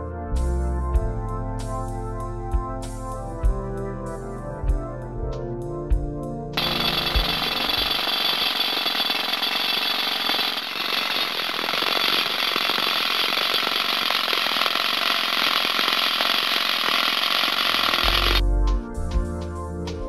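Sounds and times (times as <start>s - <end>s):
rock drill hammering: 6.6s - 18.4s.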